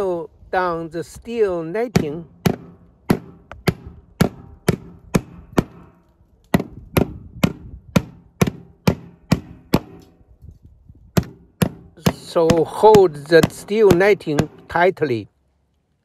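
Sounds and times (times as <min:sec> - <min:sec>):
hammer driving nails: 0:01.9 - 0:10.2, 0:11.2 - 0:14.7.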